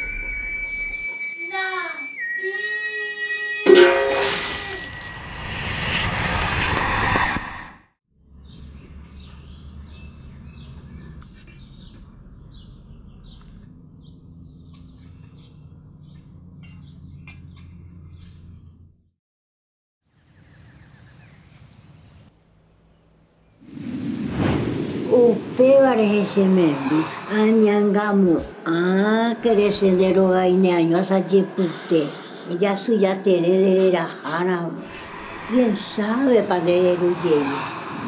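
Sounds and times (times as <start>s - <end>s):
birds chirping: 8.4s - 18.8s.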